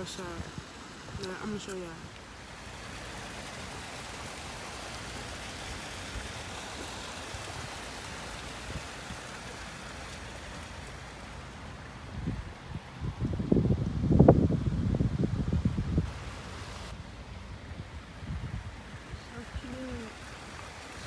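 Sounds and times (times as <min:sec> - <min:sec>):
water splashing over stones: 0:00.0 - 0:12.7, 0:18.2 - 0:21.0.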